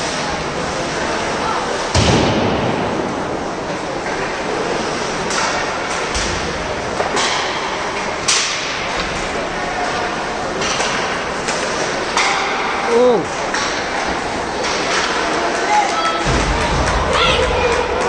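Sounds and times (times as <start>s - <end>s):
crowd noise: 0.0s - 18.0s
skating: 0.0s - 18.0s
puck hitting boards: 5.2s - 17.8s
hockey sticks cracking on puck: 5.2s - 18.0s.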